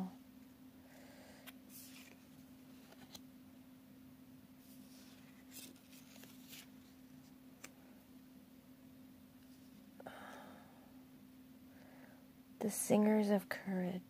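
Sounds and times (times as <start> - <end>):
low steady hum: 0.0 - 14.0
cards sliding and ticking: 1.4 - 3.3, 4.6 - 7.8.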